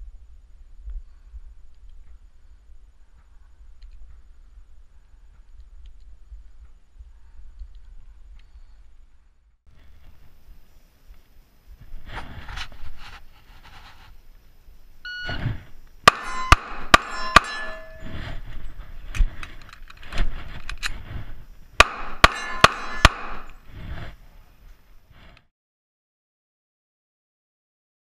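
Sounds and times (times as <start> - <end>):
short beep: 15.1 - 15.5
pistol shots: 16.0 - 17.8, 21.8 - 23.5
steel plates ringing: 16.1 - 18.4, 21.8 - 23.6.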